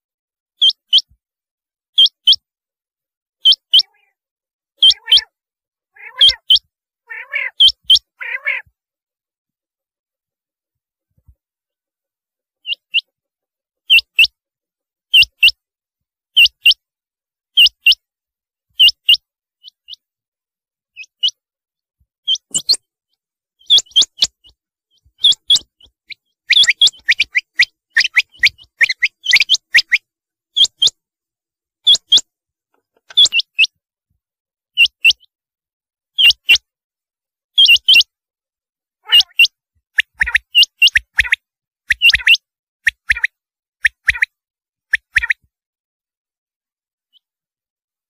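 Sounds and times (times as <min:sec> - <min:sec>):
quail calling whistled notes: 0:00.6 - 0:01.1, 0:02.0 - 0:02.4, 0:03.4 - 0:04.2, 0:04.8 - 0:05.4, 0:06.0 - 0:08.7, 0:12.6 - 0:13.1, 0:13.8 - 0:14.4, 0:15.1 - 0:15.6, 0:16.4 - 0:16.8, 0:18.8 - 0:20.0, 0:22.2 - 0:22.9, 0:23.6 - 0:31.0, 0:31.8 - 0:32.3, 0:33.0 - 0:33.8, 0:34.8 - 0:35.3, 0:36.2 - 0:36.7, 0:37.6 - 0:38.1, 0:39.0 - 0:45.5.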